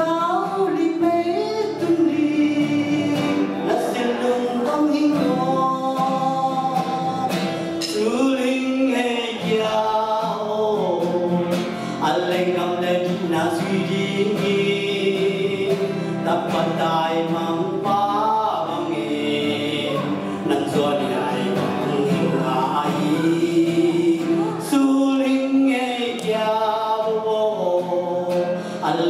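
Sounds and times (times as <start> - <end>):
man singing into a microphone: 0.0 - 29.0
strummed acoustic guitar: 0.0 - 29.0.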